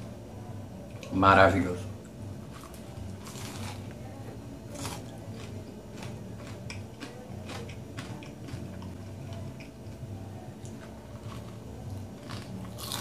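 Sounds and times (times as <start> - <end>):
crunching fried snack being chewed: 2.5 - 3.9, 4.7 - 9.0, 12.2 - 13.0.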